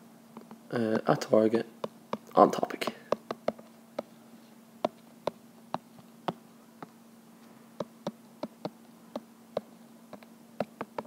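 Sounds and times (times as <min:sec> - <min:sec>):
steady low hum: 0:00.0 - 0:11.0
stylus tapping on glass screen: 0:03.1 - 0:04.1.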